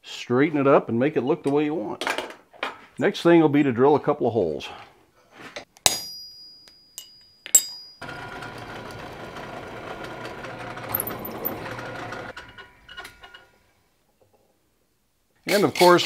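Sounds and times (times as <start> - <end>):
sharp metallic clink: 5.8 - 8.0
drill press drilling metal: 8.0 - 12.3.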